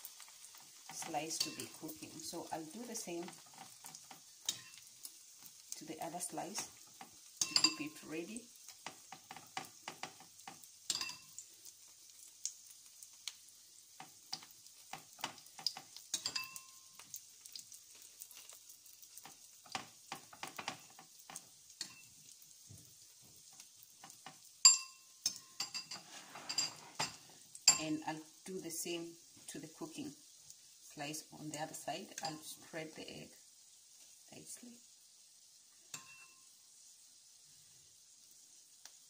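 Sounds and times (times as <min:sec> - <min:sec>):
bread frying in oil: 0:00.0 - 0:39.0
metal spoon scraping and tapping: 0:00.9 - 0:01.8, 0:03.2 - 0:04.9, 0:06.9 - 0:08.0, 0:08.8 - 0:11.4, 0:14.0 - 0:17.1, 0:19.2 - 0:22.2, 0:24.0 - 0:27.9, 0:35.9 - 0:36.4
spoon clinking against dish: 0:07.4 - 0:08.0, 0:10.9 - 0:11.4, 0:15.7 - 0:17.0, 0:24.6 - 0:27.9, 0:35.9 - 0:36.4.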